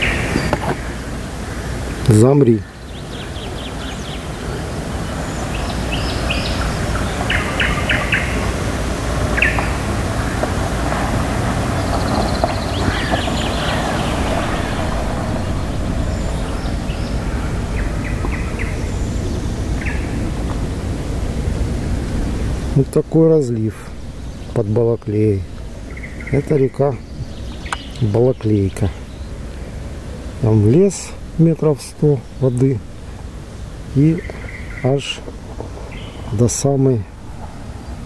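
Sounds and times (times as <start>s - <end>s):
low outdoor rumble: 10.5s - 34.0s, 37.0s - 38.0s
birds chirping and trilling: 11.8s - 21.4s, 23.8s - 29.8s.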